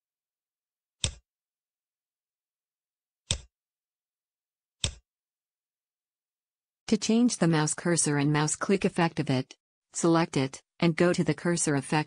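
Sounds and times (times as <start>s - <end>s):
mouse clicks: 3.3s - 3.5s, 4.8s - 5.0s.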